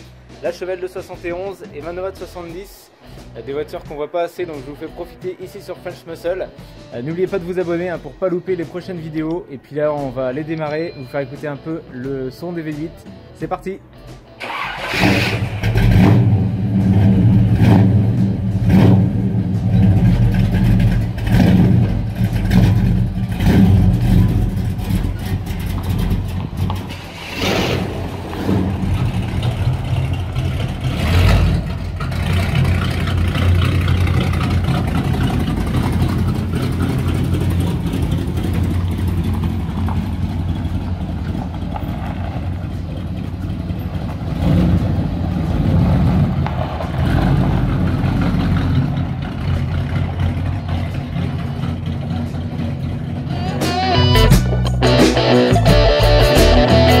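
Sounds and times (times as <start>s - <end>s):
car engine revving and idling: 14.5s - 57.0s.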